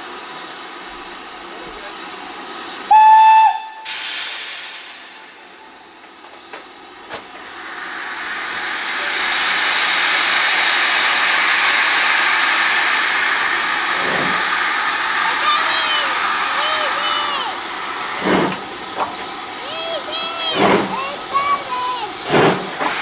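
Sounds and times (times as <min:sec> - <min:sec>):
hiss of escaping steam: 0:02.5 - 0:05.5, 0:07.2 - 0:23.0
steam whistle blast: 0:02.9 - 0:04.4.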